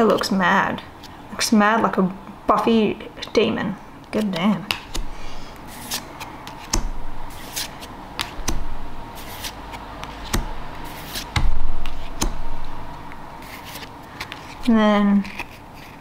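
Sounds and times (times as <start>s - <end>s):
cards clicking and rustling: 4.2s - 12.4s, 13.4s - 16.0s.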